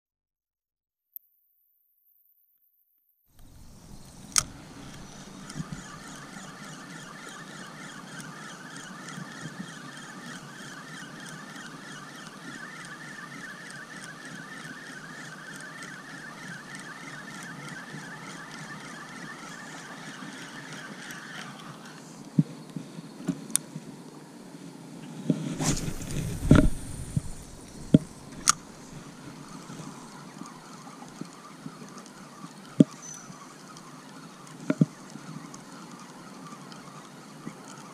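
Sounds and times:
sharp clicks: 3.4 - 13.0, 25.5 - 31.2
fishing reel gears whirring: 3.4 - 22.2, 25.5 - 37.9.

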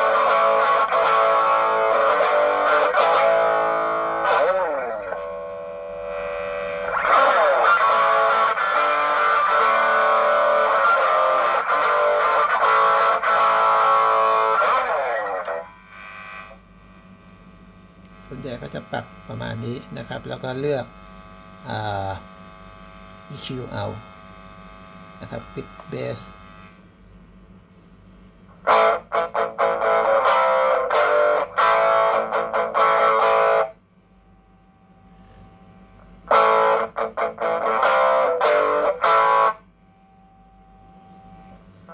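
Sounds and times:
distorted electric guitar chords: 0.0 - 26.8, 28.5 - 40.0
faint amp hum: 0.0 - 41.9.

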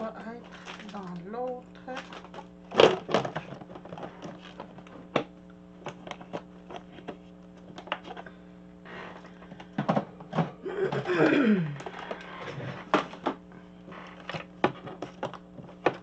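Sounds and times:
steady low hum: 0.0 - 16.0
plastic box clicks and knocks: 2.1 - 8.2, 9.6 - 12.1, 14.2 - 16.0.

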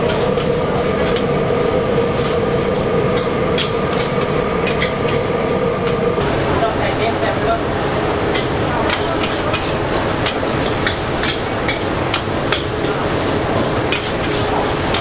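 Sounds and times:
egg frying in hot oil: 6.2 - 15.0.

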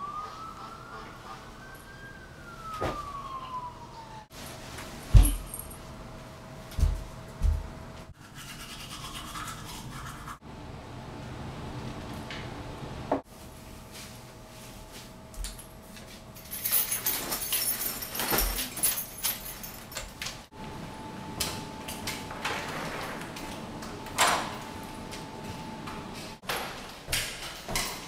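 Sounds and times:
rustling and jingling belongings: 15.9 - 20.2.

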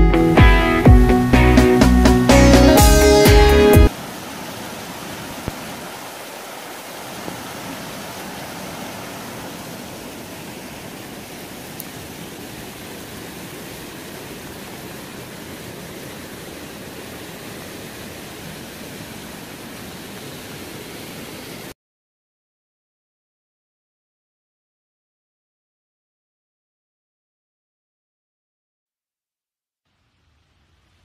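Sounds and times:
rain falling: 2.3 - 21.8
stream rushing over boulders: 2.6 - 21.8.

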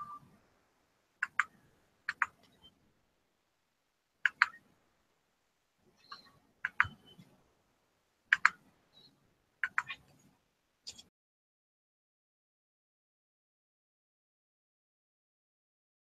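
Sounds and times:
computer mouse double clicks: 8.3 - 8.6.

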